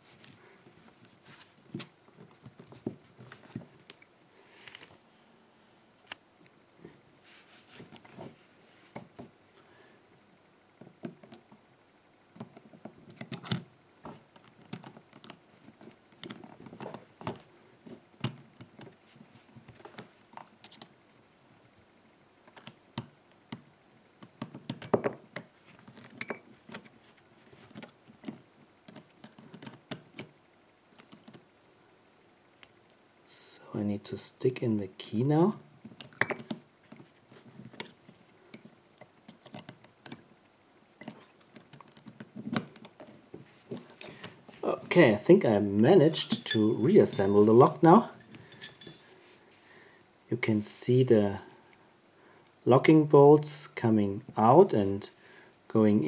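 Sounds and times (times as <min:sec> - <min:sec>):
padlock metal clicks and clinks: 0:13.1 - 0:13.6, 0:24.7 - 0:25.4, 0:26.2 - 0:26.5, 0:36.1 - 0:36.6.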